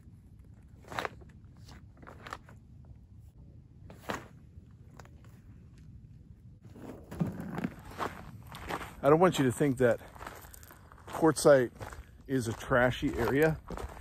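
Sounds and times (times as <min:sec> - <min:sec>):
footsteps on gravel: 0:06.7 - 0:14.0.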